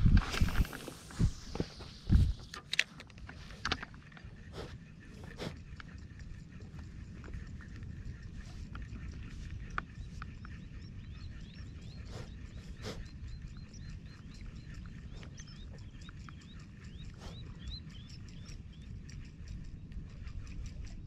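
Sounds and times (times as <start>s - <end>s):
wind rumbling on microphone: 0.0s - 21.0s
faint clicks: 2.3s - 11.4s.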